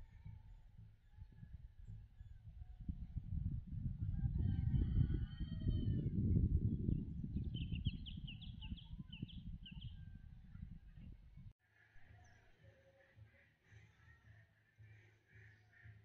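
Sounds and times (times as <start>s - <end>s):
wind buffeting microphone: 0.0s - 11.5s.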